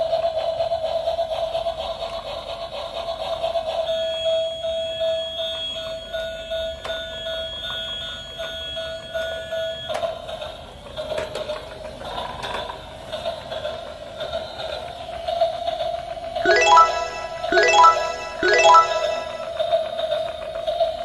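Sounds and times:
electronic toy jingle: 0:16.4 - 0:19.9.

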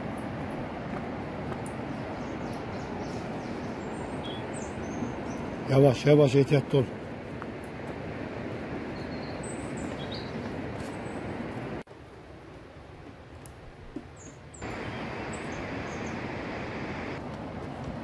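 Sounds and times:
small birds chirping: 0:01.6 - 0:06.2, 0:08.9 - 0:11.3, 0:14.0 - 0:16.4
steady rushing background noise: 0:14.6 - 0:18.0.

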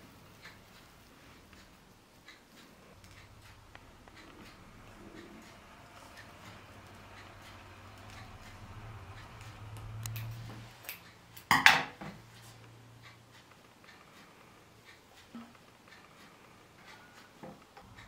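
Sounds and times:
faint low hum: 0:00.0 - 0:11.5.

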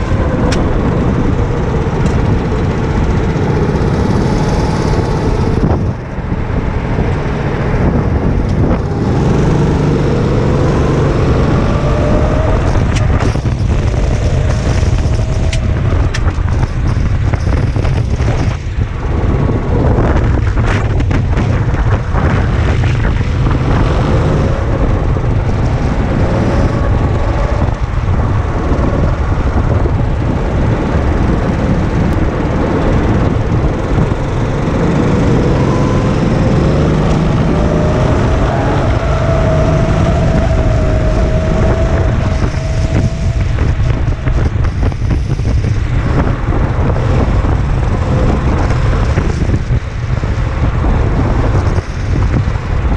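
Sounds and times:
racing kart engine running hard: 0:00.0 - 0:52.9
wind rumble on microphone: 0:00.0 - 0:52.9.

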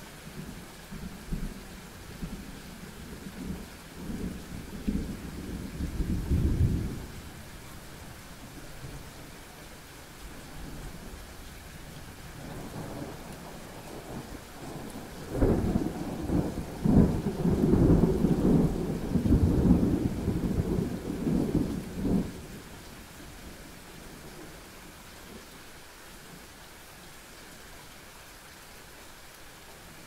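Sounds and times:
thunder rumbling: 0:03.0 - 0:07.4, 0:12.4 - 0:22.6.

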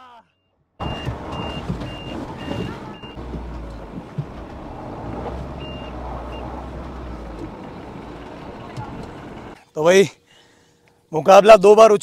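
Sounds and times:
high electronic warning beeps: 0:00.8 - 0:03.2
car engine running under load: 0:00.8 - 0:09.6.

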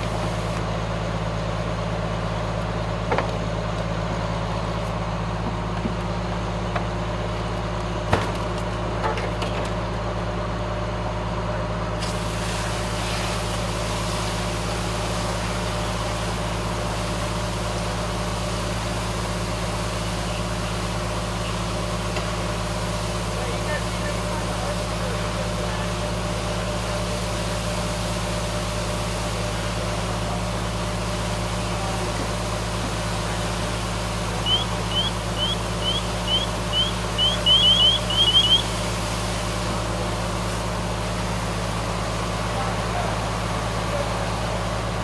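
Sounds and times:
diesel engine droning: 0:00.0 - 0:45.0
bright hiss: 0:31.5 - 0:41.8.

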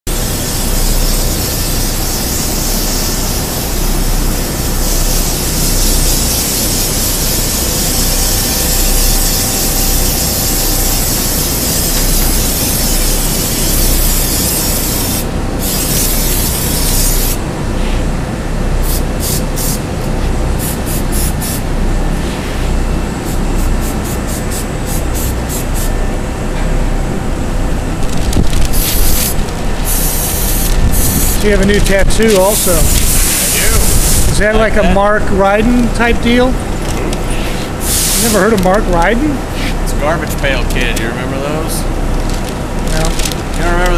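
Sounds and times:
aerosol spray can hissing: 0:00.1 - 0:17.4, 0:18.8 - 0:19.9, 0:20.6 - 0:21.6, 0:23.3 - 0:25.9, 0:28.7 - 0:31.5, 0:32.3 - 0:34.3, 0:37.8 - 0:38.5.

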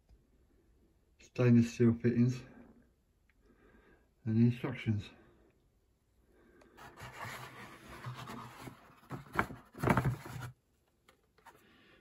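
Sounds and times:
plastic scraping against cardboard: 0:06.8 - 0:10.6.

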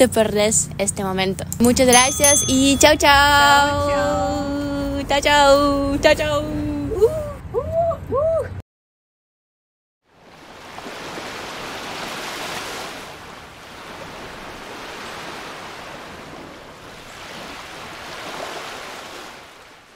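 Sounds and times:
ocean waves breaking on beach: 0:10.1 - 0:19.9.

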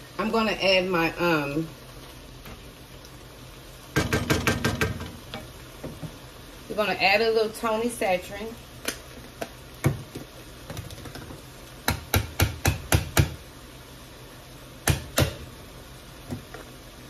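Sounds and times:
kitchen utensils knocking: 0:04.0 - 0:05.4.

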